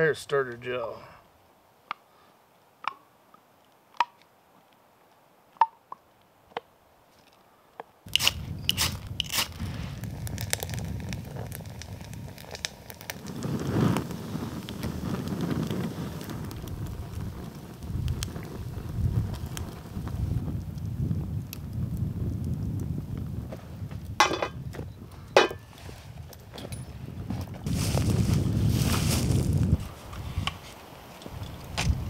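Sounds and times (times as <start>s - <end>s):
campfire crackling and popping: 8.0s - 32.0s
rush of fire igniting: 8.1s - 32.0s.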